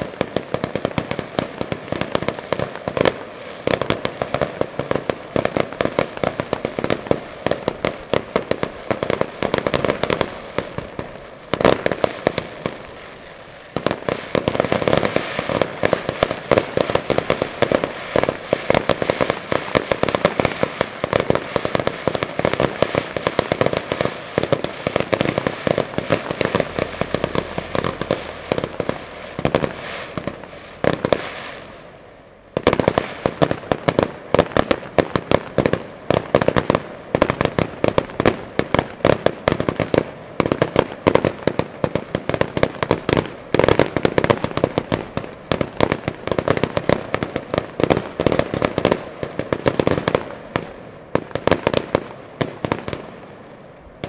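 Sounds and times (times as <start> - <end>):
fireworks cracking and popping: 0.0 - 54.0.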